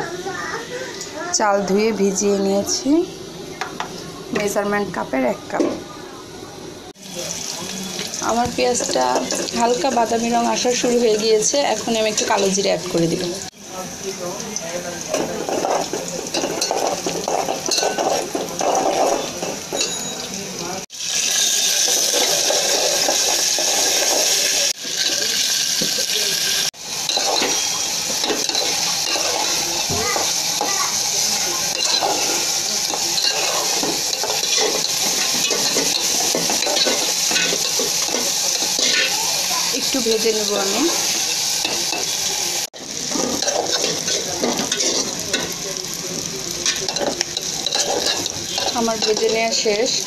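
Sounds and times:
food sizzling in hot oil: 6.8s - 50.0s
metal spatula stirring in pot: 31.7s - 39.2s, 42.8s - 45.6s, 46.8s - 49.7s.

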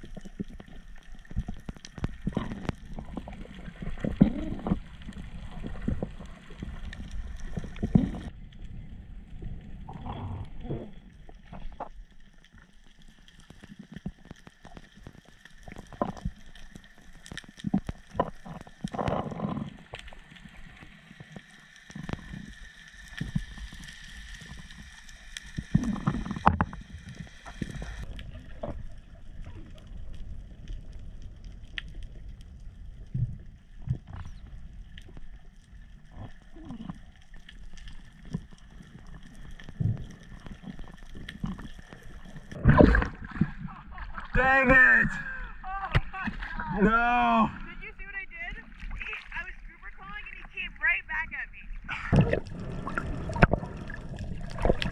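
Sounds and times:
muffled underwater noise: 1.6s - 11.9s, 41.4s - 54.9s.

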